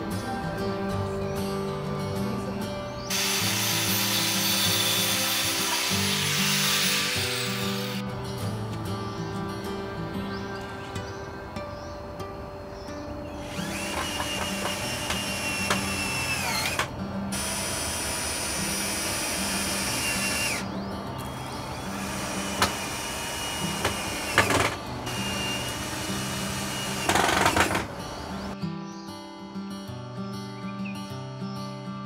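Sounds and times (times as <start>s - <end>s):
cordless drill whining: 3.1s - 8.0s, 13.4s - 28.6s.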